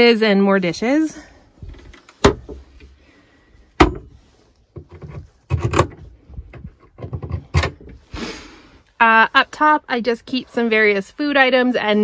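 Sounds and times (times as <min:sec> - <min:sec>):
small knocks and rattles: 0:03.8 - 0:08.0.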